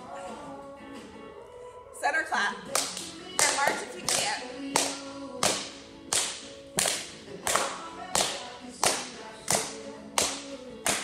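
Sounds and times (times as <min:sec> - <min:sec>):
faint background music: 0:00.0 - 0:11.0
hands clapping rhythmically: 0:02.7 - 0:11.0.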